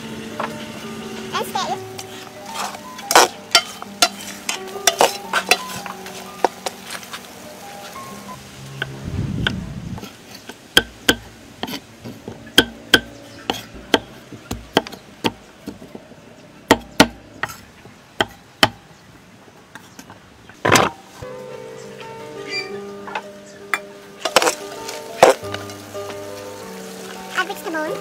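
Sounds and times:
louder longer noise: 8.0s - 10.0s
cleaver chopping on wooden block: 10.8s - 15.9s, 16.7s - 17.6s, 18.2s - 18.8s.

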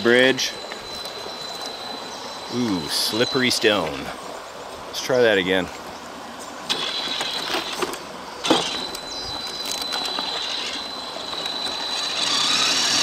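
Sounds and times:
electric motor whining: 6.7s - 13.0s.

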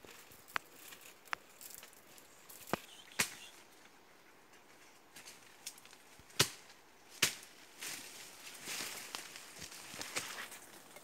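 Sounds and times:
rustling leaves and brush: 0.0s - 11.0s
sharp woody cracks: 5.6s - 7.5s.

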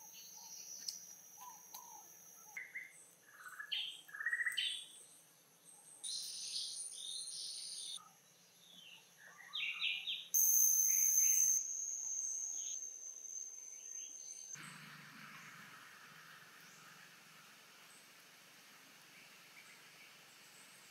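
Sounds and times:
insects droning: 0.0s - 4.7s, 6.0s - 20.9s
birds chirping: 13.6s - 20.9s.

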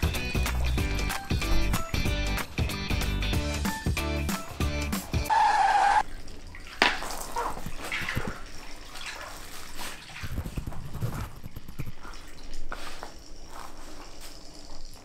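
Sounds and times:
water dripping: 6.0s - 15.0s.

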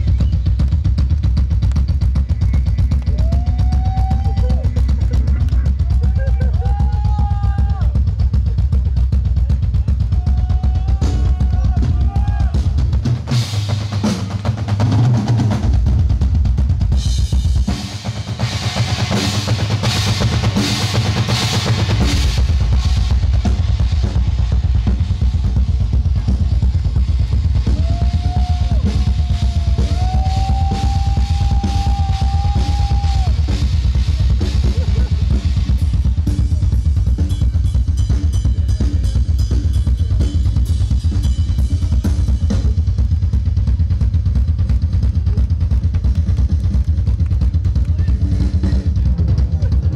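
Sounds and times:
heavy bass: 0.0s - 49.9s
live band music: 17.1s - 43.3s.

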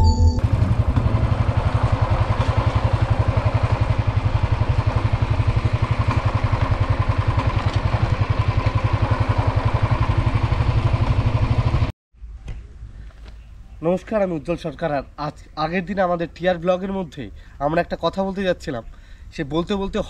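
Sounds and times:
small engine idling: 0.4s - 11.9s.

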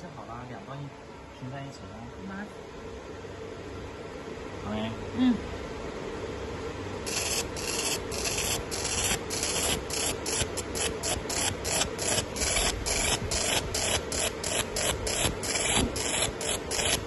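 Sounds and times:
low machine hum: 0.0s - 17.0s
laser hissing on metal: 7.1s - 17.0s.

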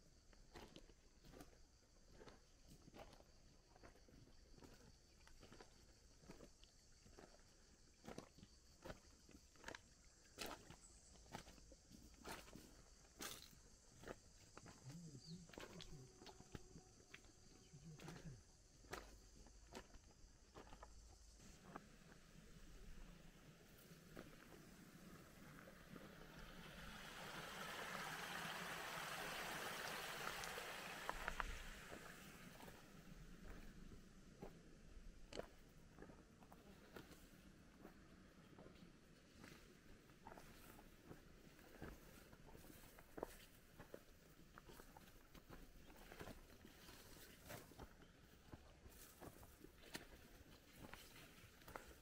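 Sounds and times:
footsteps on creek stones: 0.6s - 22.4s, 29.8s - 52.0s
steady high hiss: 21.2s - 34.2s
creek rushing over stones: 21.5s - 33.8s.

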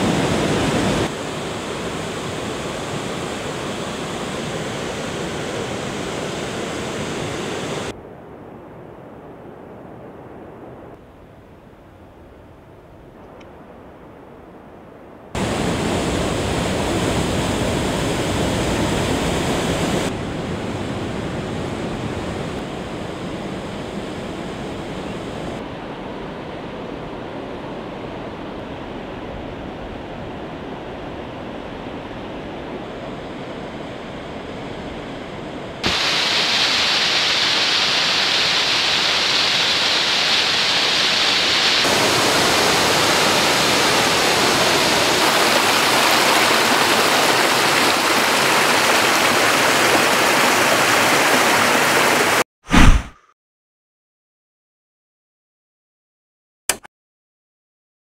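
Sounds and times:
waterfall rushing over rocks: 35.8s - 52.4s.

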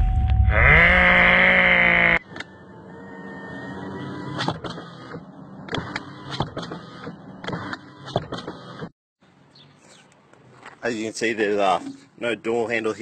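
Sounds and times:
loud buzzing drone: 0.0s - 2.2s.

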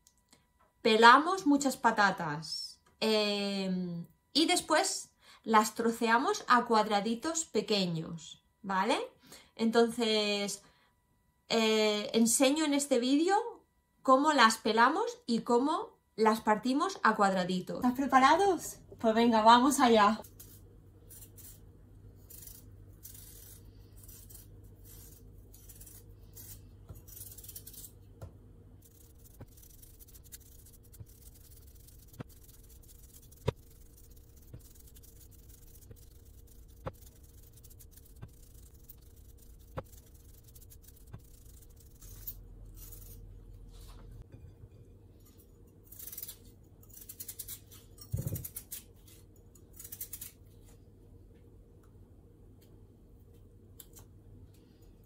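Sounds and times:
low hum: 17.3s - 46.0s
knife scraping potato skin: 20.2s - 28.1s, 28.8s - 43.3s, 45.2s - 50.8s.

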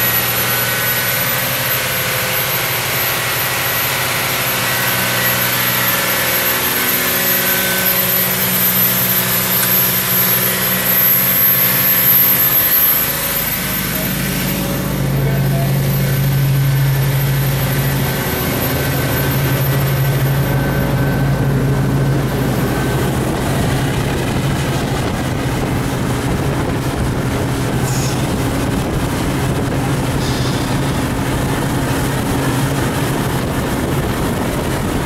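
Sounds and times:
boat engine running: 0.0s - 35.0s
water rushing along hull: 0.0s - 35.0s.

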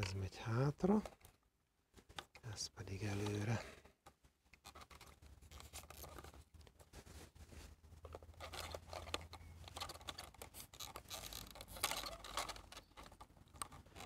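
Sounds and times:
screwdriver prising plastic: 8.4s - 14.0s.

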